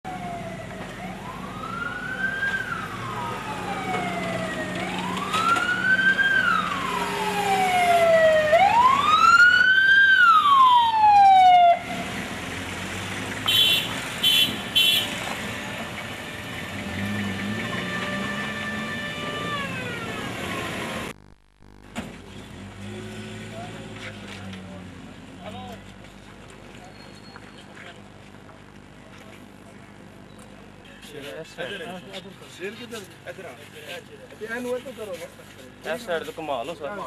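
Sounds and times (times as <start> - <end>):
vehicle siren wailing: 0.1 - 12.0, 16.8 - 21.1
passing traffic hum: 0.1 - 26.9.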